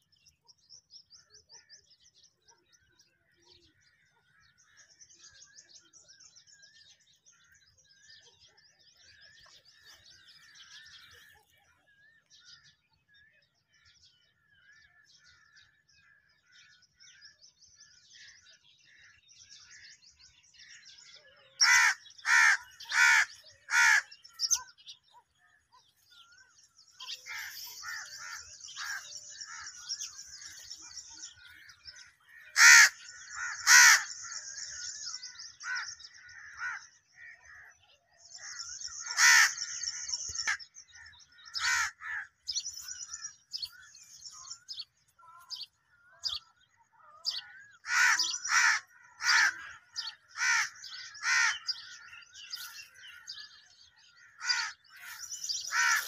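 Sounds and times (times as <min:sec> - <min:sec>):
small birds chirping: 0:00.0 - 0:56.0
crows cawing: 0:21.6 - 0:24.6, 0:27.0 - 0:30.7, 0:32.0 - 0:34.9, 0:35.6 - 0:37.8, 0:38.4 - 0:43.8, 0:47.2 - 0:56.0.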